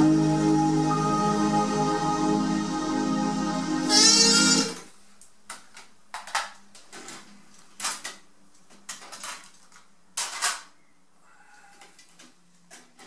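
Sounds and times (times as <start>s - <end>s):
music playing: 0.0s - 4.8s.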